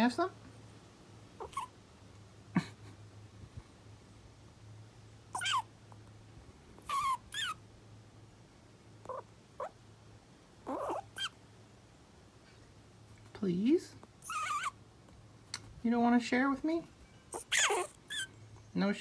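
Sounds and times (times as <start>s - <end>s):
squirrel squeaking: 1.3s - 1.8s, 5.3s - 5.7s, 6.8s - 7.6s, 9.0s - 9.8s, 10.6s - 11.4s, 14.0s - 14.8s, 17.0s - 18.8s.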